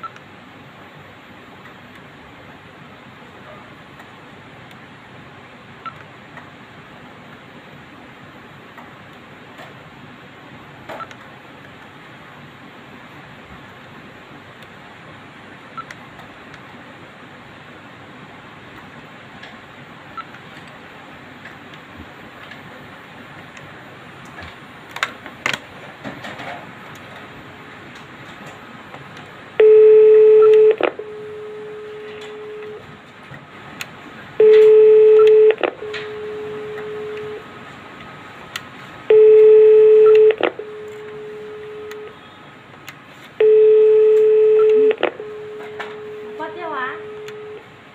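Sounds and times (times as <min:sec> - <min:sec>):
telephone dial tone: 0:29.6 - 0:32.8, 0:34.4 - 0:37.4, 0:39.1 - 0:42.3, 0:43.4 - 0:47.6.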